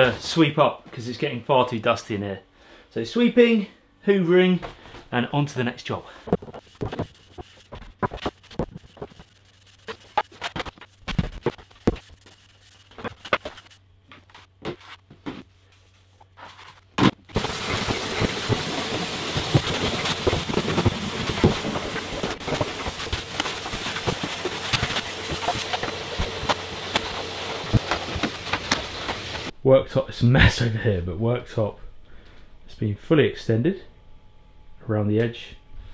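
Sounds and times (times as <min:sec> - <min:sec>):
brush sweeping floor: 0:06.3 - 0:29.5
vacuum cleaner running: 0:17.3 - 0:29.5.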